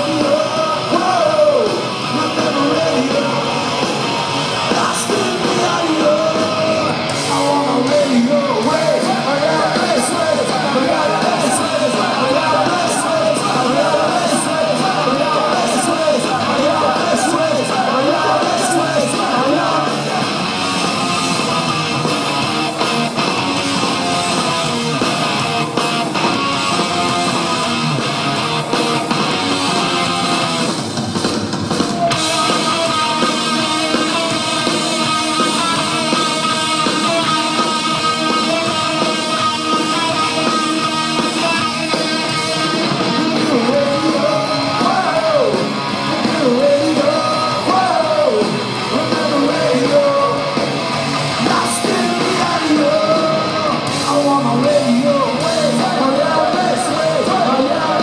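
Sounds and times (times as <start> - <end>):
man singing: 0.0 - 3.5, 4.6 - 20.4, 32.0 - 50.6, 51.3 - 58.0
electric guitars: 0.0 - 58.0
live rock band playing: 0.0 - 58.0.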